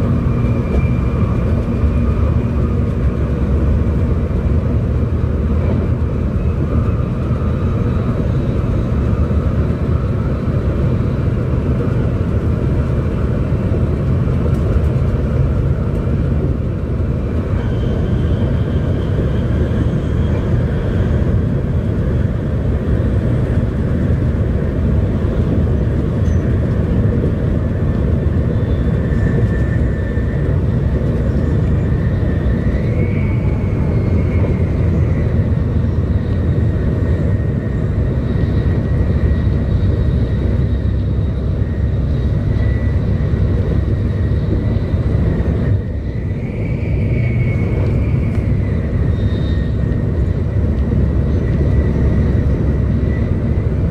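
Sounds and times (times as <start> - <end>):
train running gear rumble: 0.0 - 53.9.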